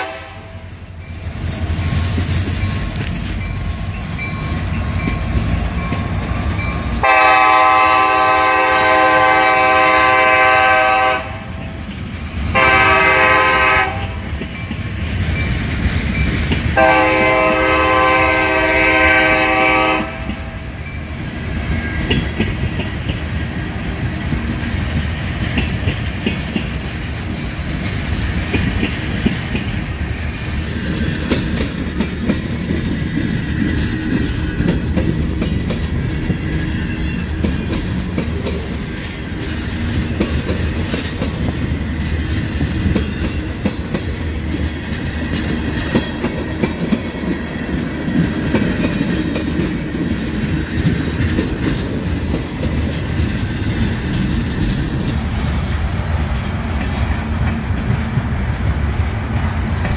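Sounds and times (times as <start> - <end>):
rail clicks and clanks: 0.0 - 59.9
train wheels rumbling on rails: 0.0 - 59.9.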